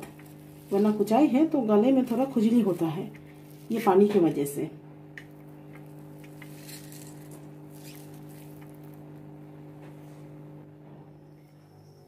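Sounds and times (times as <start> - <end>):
steady low hum: 0.0 - 12.0
wet squishing by hand: 5.7 - 8.9.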